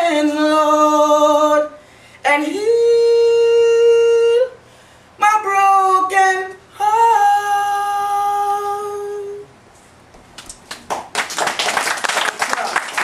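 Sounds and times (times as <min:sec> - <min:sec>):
man singing long note: 0:05.2 - 0:09.5
applause: 0:10.4 - 0:13.0.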